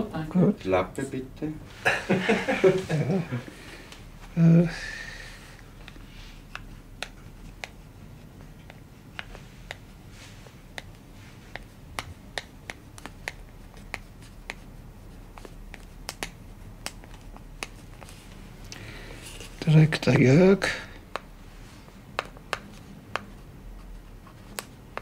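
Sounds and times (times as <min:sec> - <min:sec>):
low steady hum: 0:00.0 - 0:25.0
pencil clicking on a slate: 0:05.8 - 0:07.8, 0:08.6 - 0:09.8, 0:10.7 - 0:14.7, 0:15.3 - 0:18.1, 0:22.1 - 0:25.0.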